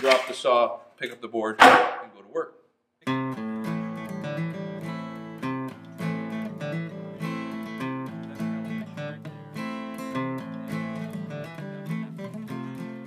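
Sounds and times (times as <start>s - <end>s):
strummed acoustic guitar chords: 3.1s - 13.0s.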